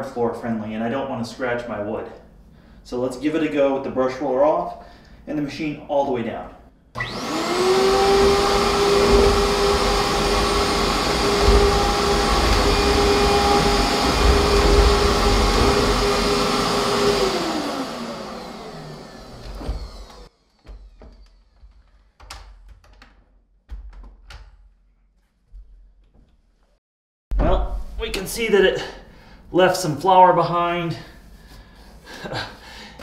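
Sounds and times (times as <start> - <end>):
vacuum cleaner motor whining: 7.0 - 21.6.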